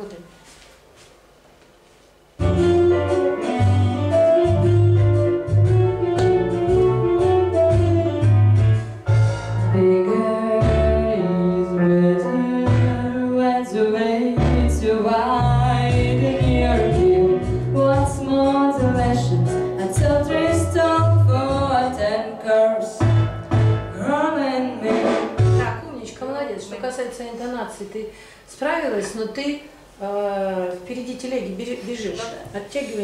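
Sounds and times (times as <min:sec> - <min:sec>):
instrumental accompaniment: 0:02.4 - 0:13.5, 0:14.3 - 0:25.9
woman singing: 0:09.7 - 0:23.0, 0:24.0 - 0:25.8.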